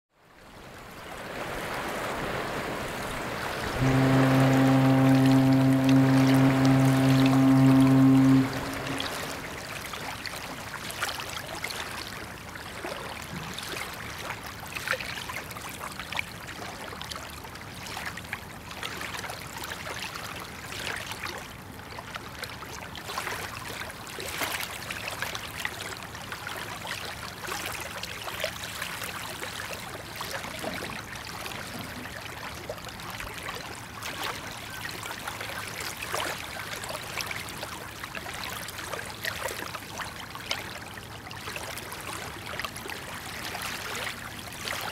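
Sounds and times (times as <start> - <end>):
small waves lapping: 0.3 - 15.2, 29.1 - 44.9.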